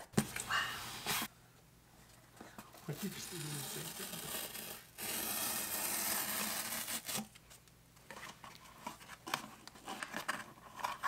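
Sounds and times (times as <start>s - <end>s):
cardboard tear strip ripping: 3.1s - 7.3s.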